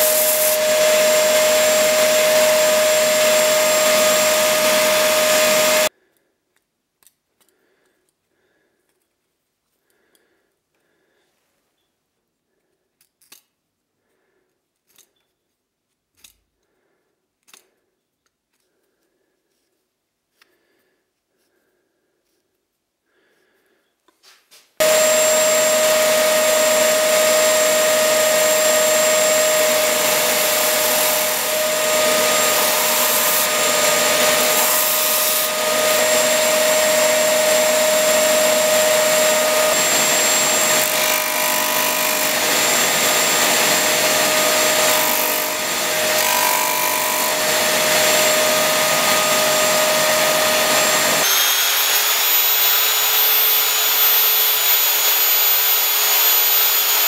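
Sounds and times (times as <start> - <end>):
belt sander whine: 0.0 - 5.9, 24.8 - 57.0
bench sander rasping wood: 0.0 - 5.9, 24.8 - 52.4.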